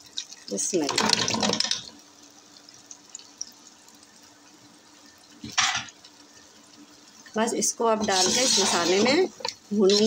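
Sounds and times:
food bubbling in a pot: 0.0 - 10.0
steel ladle scraping a pot: 8.0 - 10.0.

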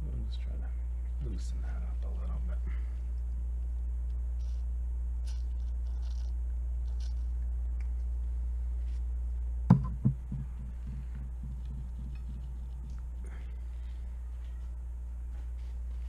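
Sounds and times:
steady low hum: 0.0 - 16.0
can knocking on table: 9.7 - 10.7.

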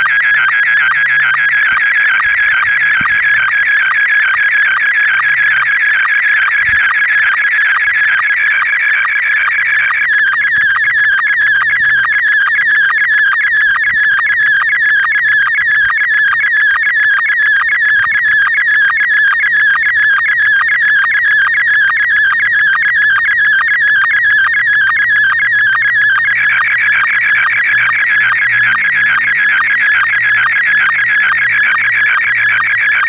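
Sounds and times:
fast-warbling radio tone: 0.0 - 33.0
rapid sync pulse ticks: 0.0 - 33.0.

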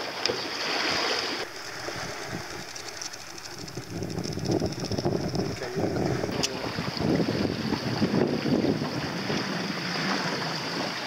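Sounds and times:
water splashing along a hull: 0.0 - 11.0
wind noise on microphone: 1.4 - 10.9.

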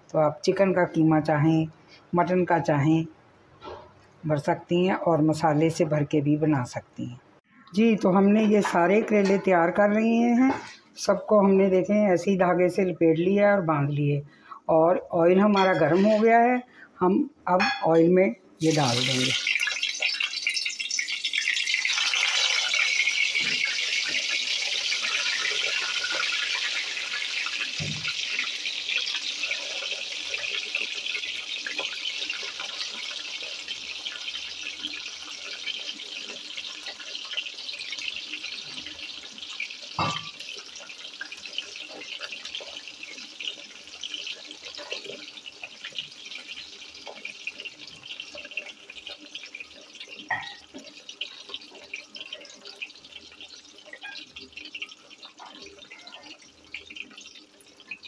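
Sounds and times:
food sizzling in hot oil: 18.6 - 58.0.

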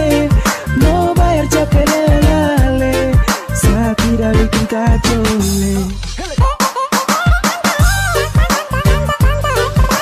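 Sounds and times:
deep bass kick drums: 0.0 - 6.5
music melody: 0.0 - 10.0.

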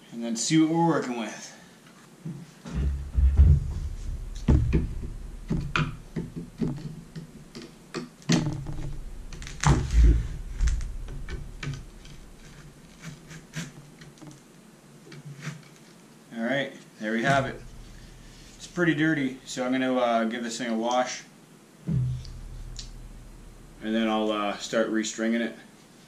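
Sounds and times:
wooden frame thumping on table: 2.7 - 7.7, 8.3 - 12.6.

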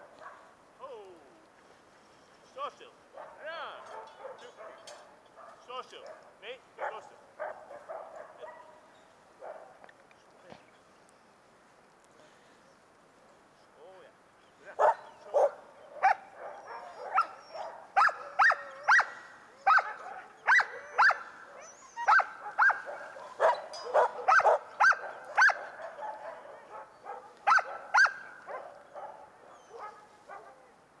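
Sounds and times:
sled dogs barking: 0.0 - 0.6, 3.1 - 9.8, 14.6 - 31.0.

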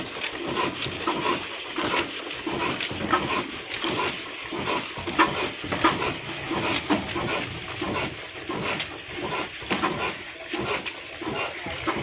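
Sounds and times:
diesel engine starting up: 2.5 - 12.0.

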